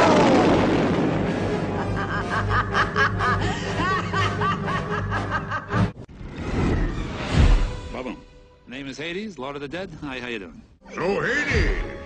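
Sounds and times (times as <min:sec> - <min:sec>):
orchestral music: 0:00.5 - 0:09.7
woman laughing: 0:01.8 - 0:05.8.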